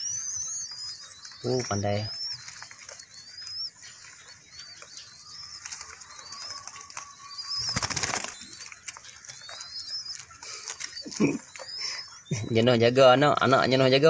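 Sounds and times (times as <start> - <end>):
dove chicks squeaking: 0.0 - 14.0
wings flapping: 0.8 - 12.0.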